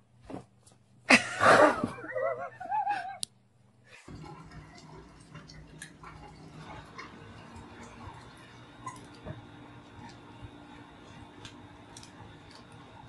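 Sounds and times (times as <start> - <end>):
person laughing: 1.1 - 3.3.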